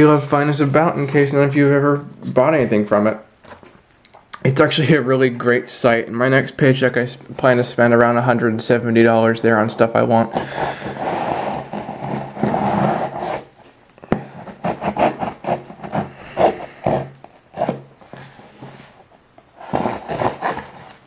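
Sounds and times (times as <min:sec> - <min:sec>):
blade slitting packing tape: 0:19.6 - 0:21.0.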